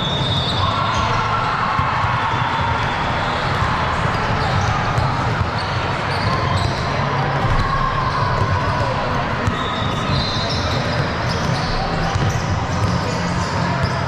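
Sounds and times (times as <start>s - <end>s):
voices in large hall: 0.0s - 14.0s
basketball dribbling on gym floor: 8.4s - 13.0s.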